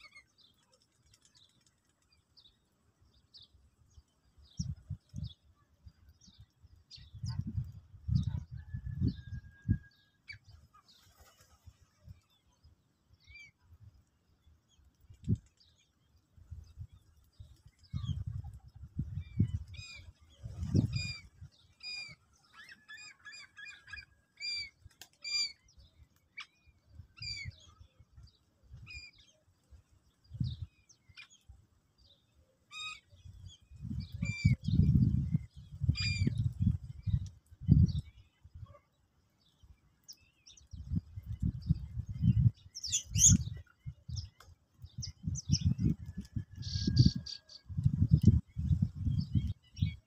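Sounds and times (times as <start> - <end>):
wing flutter: 0.0 - 2.4
sparrows chirping: 10.3 - 50.0.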